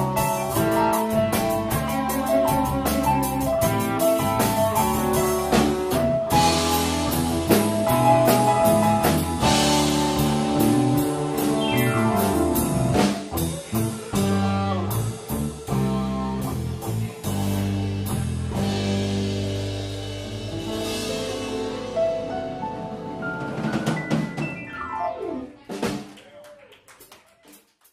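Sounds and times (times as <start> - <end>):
electric guitar: 0.0 - 25.8
drum kit: 0.0 - 26.2.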